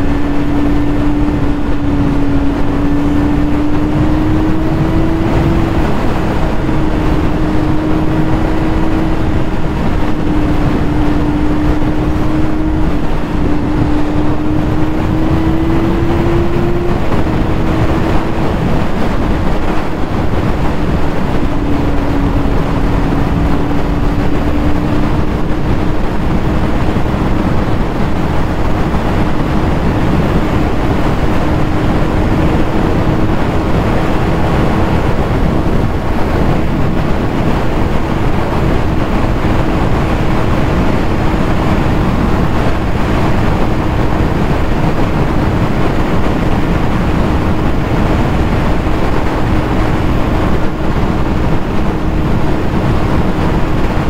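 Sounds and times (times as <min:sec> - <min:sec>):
motorcycle engine cruising: 0:00.0 - 0:54.0
wind rush on microphone: 0:00.0 - 0:54.0.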